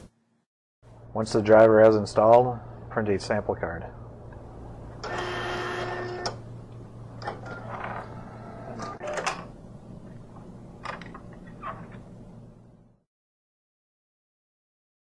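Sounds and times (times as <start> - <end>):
card printer whine: 5.0 - 6.4, 7.2 - 9.5
printer clicks and whirs: 5.0 - 6.4, 7.2 - 9.5.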